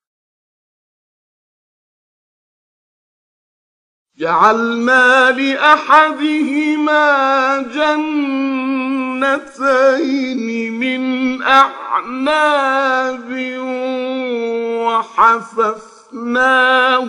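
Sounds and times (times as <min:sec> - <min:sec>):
man reciting melodically: 0:04.2 - 0:17.0.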